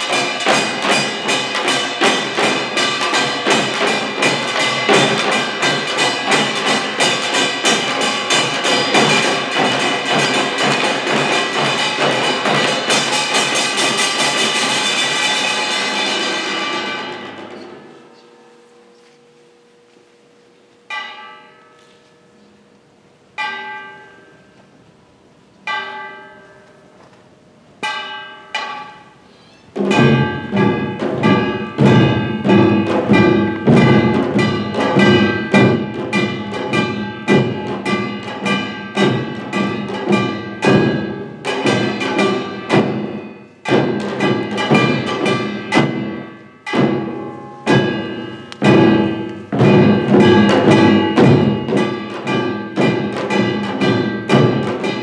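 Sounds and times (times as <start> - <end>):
loud fast ensemble drumming: 0.0 - 17.6, 29.8 - 55.0
single ringing drum strokes: 27.8 - 55.0.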